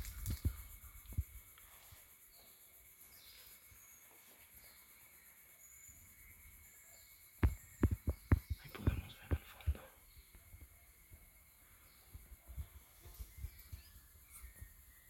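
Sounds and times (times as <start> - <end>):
high bird or insect chirps: 0.0 - 15.0
sharp thumps near microphone: 7.4 - 9.8.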